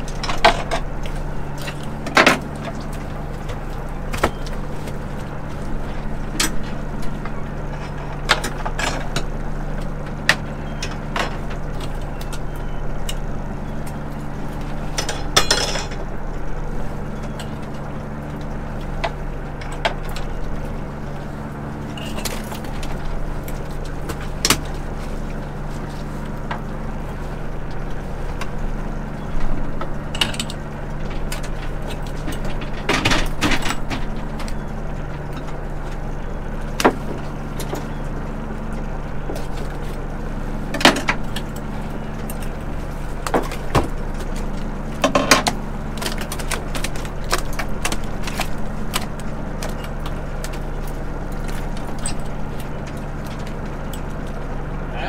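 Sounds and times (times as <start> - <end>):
boat machinery humming: 0.0 - 55.0
knocks and clatter on deck: 31.0 - 34.6, 43.2 - 44.3.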